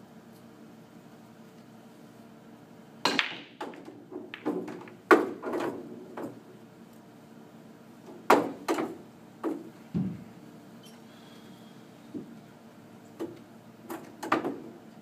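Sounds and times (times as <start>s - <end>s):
cue ball breaking racked balls: 3.0s - 6.4s, 8.2s - 9.7s, 13.2s - 14.7s
pool balls clacking: 3.1s - 6.5s, 8.2s - 10.2s, 13.2s - 14.8s.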